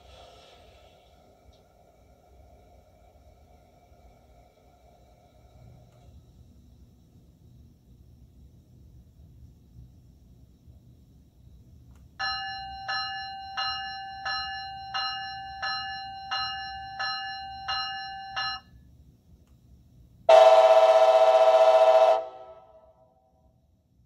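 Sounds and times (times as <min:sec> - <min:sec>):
model locomotive bell strikes: 0:12.2 - 0:18.7
locomotive horn blast: 0:20.3 - 0:23.0.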